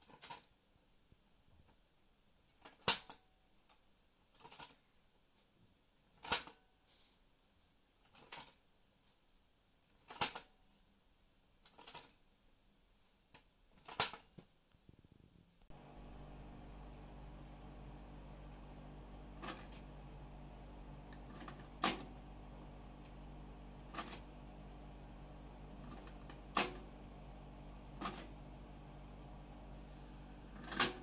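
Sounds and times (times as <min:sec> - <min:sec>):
steady low hum: 0:15.0 - 0:31.0.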